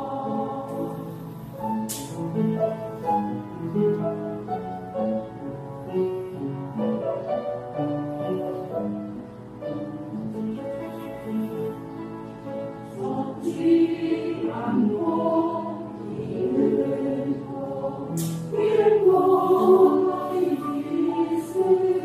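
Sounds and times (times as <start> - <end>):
choir singing held chords: 0.0 - 3.3, 10.5 - 22.0
instrumental accompaniment: 0.0 - 22.0.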